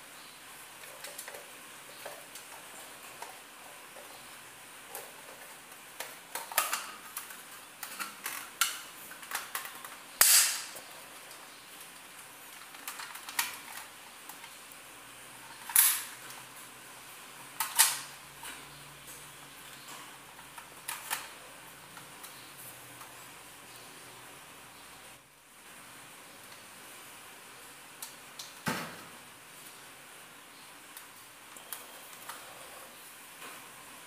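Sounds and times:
plastic clicks and rattles: 4.9 - 14.6, 19.8 - 22.4
loud plastic snaps: 6.0 - 10.8.

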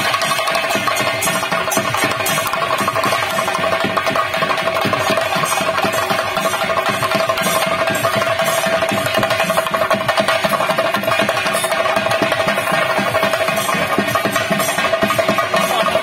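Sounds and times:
fast drumming: 0.0 - 16.0.

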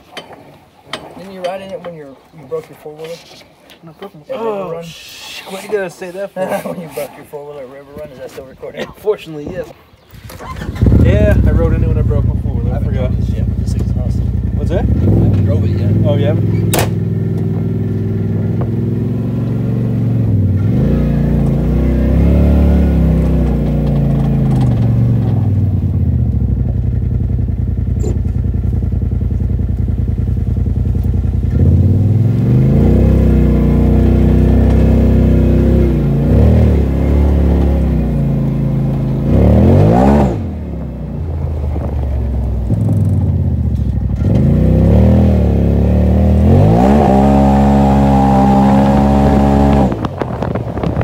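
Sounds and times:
vehicle engine revving: 10.4 - 51.0.

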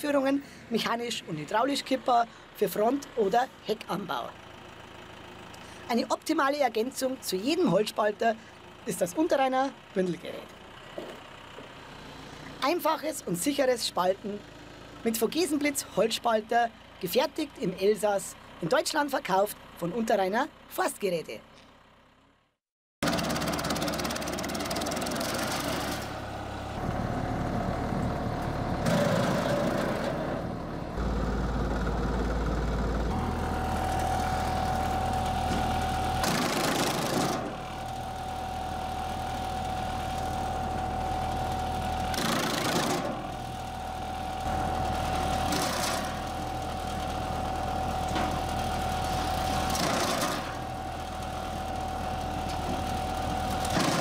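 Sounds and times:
firewood processing machine whine: 0.4 - 15.8, 23.0 - 54.0.

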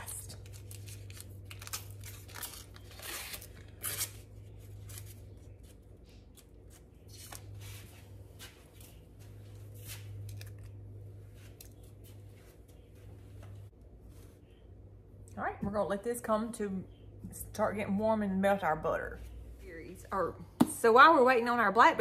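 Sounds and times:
steady low hum: 0.0 - 22.0
paper wrapper crinkling: 0.2 - 7.6.

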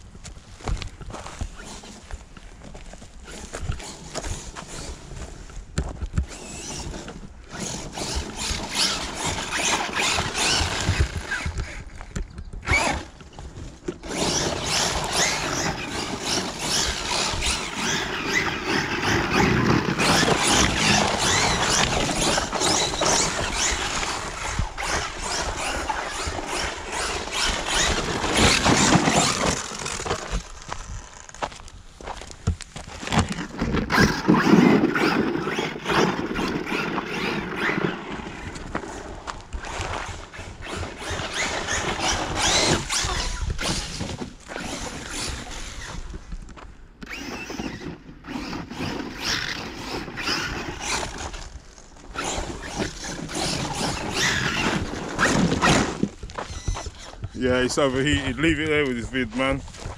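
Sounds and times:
radio-controlled car motor and tyres: 0.5 - 59.9.

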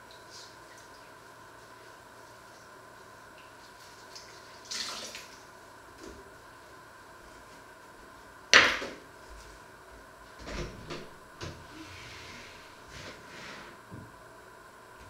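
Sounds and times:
water splashing in sink: 3.4 - 5.5.

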